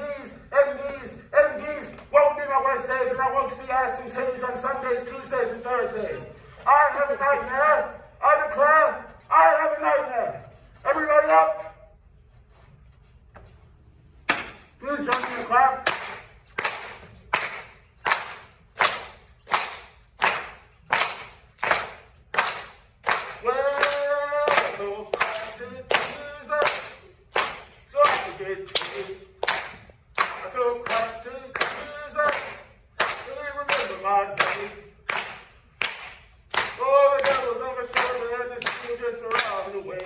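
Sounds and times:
rhythmic handclapping: 14.2 - 40.0.

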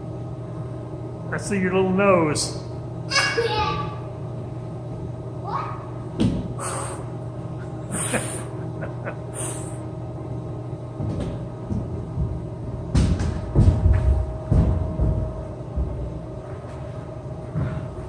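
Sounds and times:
steady background hum: 0.0 - 18.0
hollow thumps and knocks: 11.0 - 16.1.

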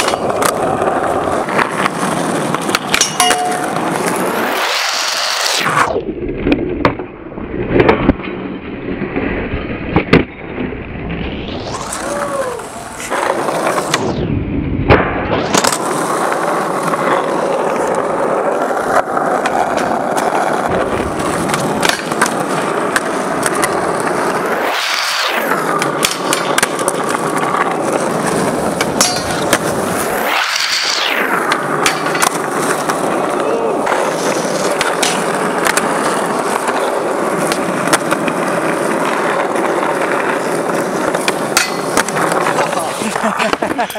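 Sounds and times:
skateboard clacks: 0.0 - 5.8, 14.9 - 43.9
skateboard wheels rolling on asphalt: 0.0 - 43.9.

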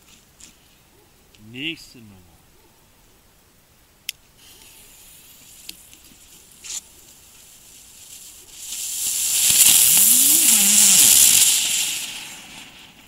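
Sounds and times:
firework spitting sparks: 4.4 - 13.0
spinning firework whirring: 4.4 - 13.0.

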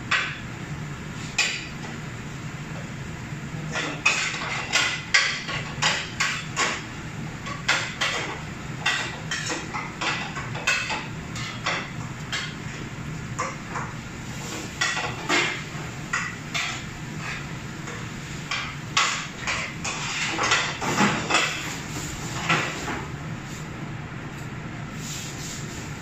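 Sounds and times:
metal cookware clanking and scraping: 18.5 - 21.7.

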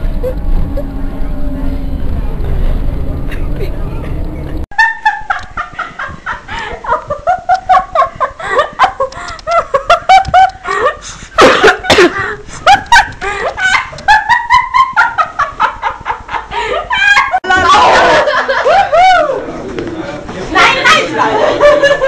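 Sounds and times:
high-pitched laughter and giggling: 4.8 - 19.4, 21.0 - 22.0.

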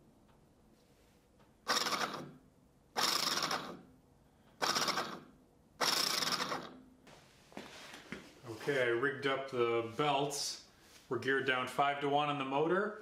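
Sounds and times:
small motor and gear spinning: 1.7 - 2.3, 3.0 - 3.8, 4.6 - 6.8.

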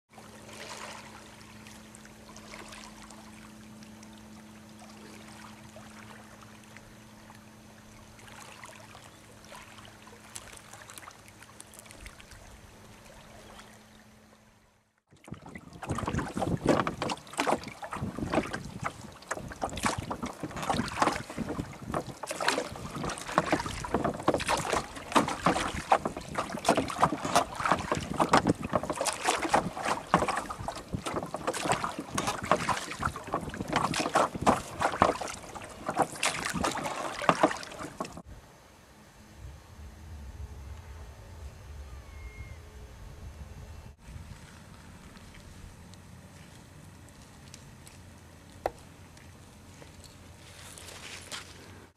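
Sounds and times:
calm water at pebble shore: 0.1 - 38.7, 44.0 - 51.9
low steady hum: 0.1 - 51.9
gusty wind buffeting microphone: 15.6 - 17.1, 17.9 - 24.3.

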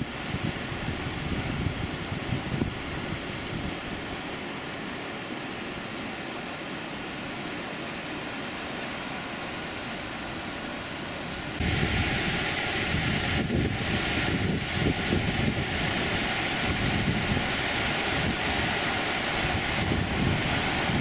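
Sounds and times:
wind buffeting microphone: 0.0 - 4.1, 11.6 - 21.0
river rushing over rocks: 0.0 - 21.0.

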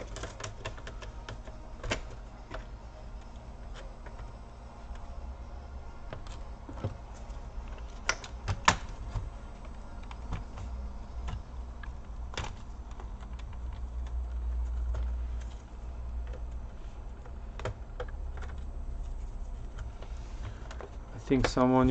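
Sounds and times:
plastic clips snapping: 6.0 - 21.9.

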